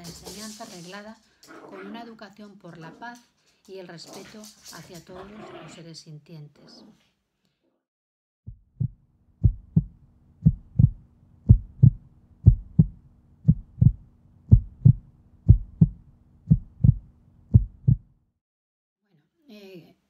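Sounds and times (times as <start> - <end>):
heartbeat thumps: 8.5 - 18.1.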